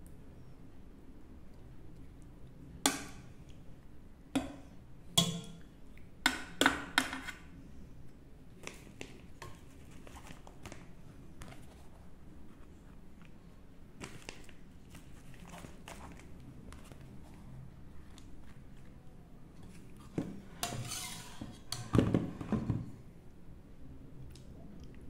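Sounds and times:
metal ladle clinking on pan: 5.2 - 5.6.

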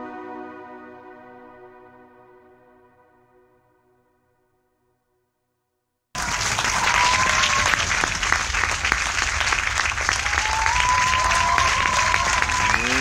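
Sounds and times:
crowd applause: 6.2 - 13.0
thin rising whistle: 10.2 - 13.0.

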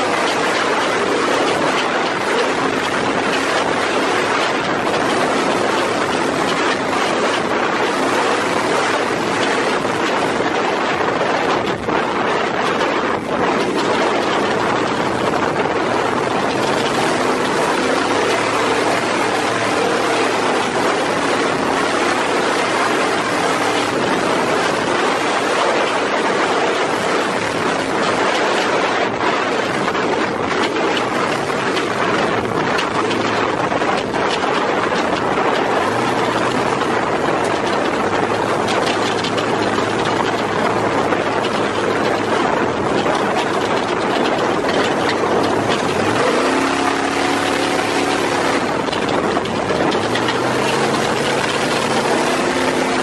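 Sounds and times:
truck engine at speed: 0.0 - 53.0.

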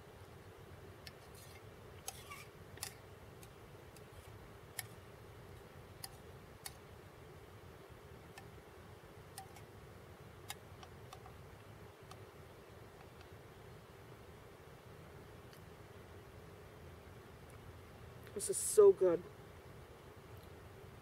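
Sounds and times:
faint steady background noise: 0.0 - 21.0.

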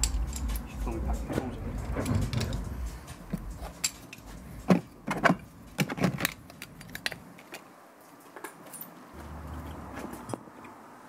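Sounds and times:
metal hand tools clinking: 0.0 - 7.6.

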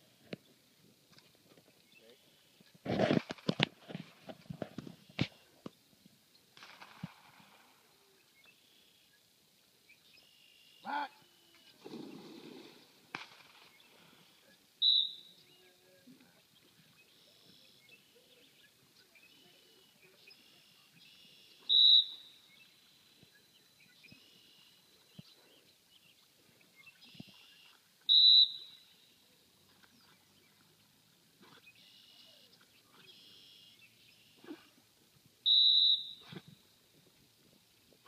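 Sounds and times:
faint chirps: 7.3 - 34.8
dog whistle blasts: 14.8 - 15.3, 21.7 - 22.3, 28.1 - 28.8, 35.4 - 36.4.

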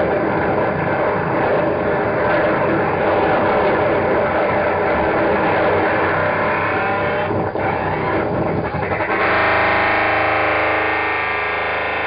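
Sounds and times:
buzzing distorted drone: 0.0 - 12.0
dense distorted noise music: 0.0 - 12.0.

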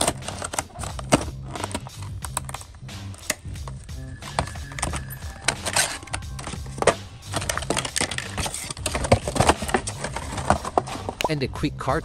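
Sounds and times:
plastic packaging clicks and crinkles: 0.0 - 3.4, 4.9 - 11.0
background music with bass line: 0.0 - 12.0.

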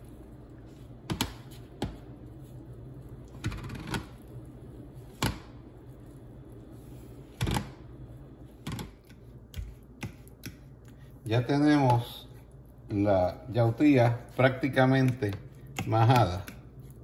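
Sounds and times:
steady low hum: 0.0 - 17.0
potato masher knocking on bowl: 14.8 - 16.6.

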